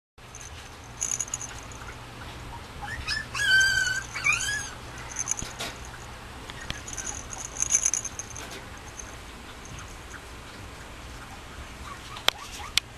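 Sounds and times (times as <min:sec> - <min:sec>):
light rustling: 0:00.3 - 0:02.0, 0:03.9 - 0:10.2
puppy whining and yelping: 0:02.5 - 0:06.0, 0:11.3 - 0:12.9.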